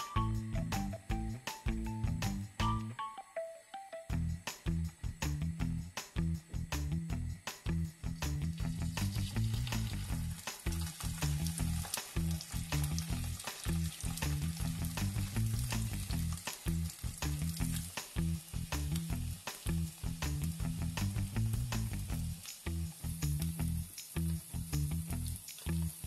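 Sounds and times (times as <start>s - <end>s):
background music: 0.0s - 5.4s
cheese sizzling in oil: 8.6s - 26.0s.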